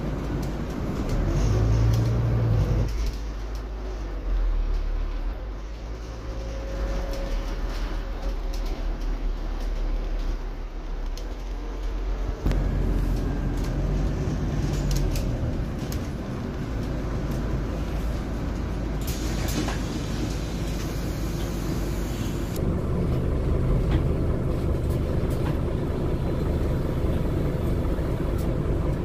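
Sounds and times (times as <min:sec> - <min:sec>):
bus engine hum: 0:00.0 - 0:29.0
road noise: 0:00.0 - 0:29.0
hiss: 0:19.0 - 0:22.6.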